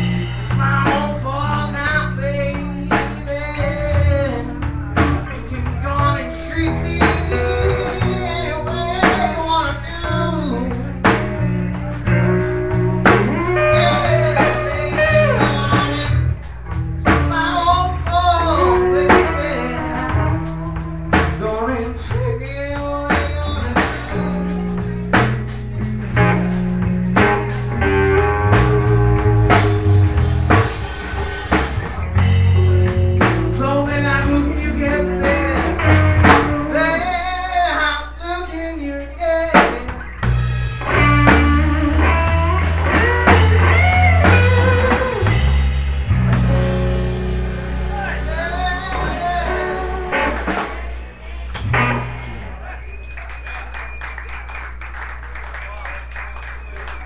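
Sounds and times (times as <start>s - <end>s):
drum kit: 0.0s - 38.3s, 39.2s - 57.0s
electric guitar notes bending: 0.0s - 53.4s
bass: 0.0s - 57.0s.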